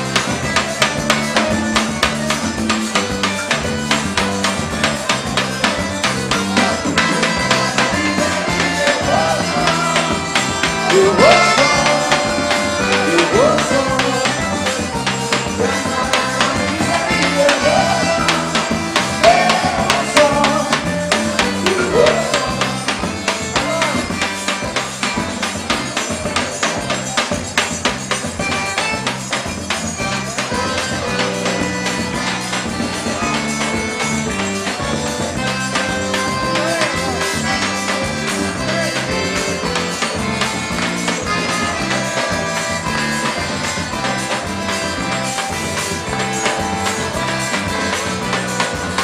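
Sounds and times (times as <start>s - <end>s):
accordion melody: 0.0s - 49.0s
drum kit: 0.0s - 49.0s
jingling hand percussion: 0.0s - 49.0s.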